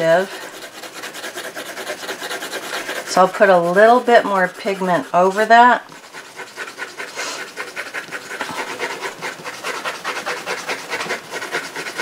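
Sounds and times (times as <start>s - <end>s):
pencil scratching on paper: 0.0s - 12.0s.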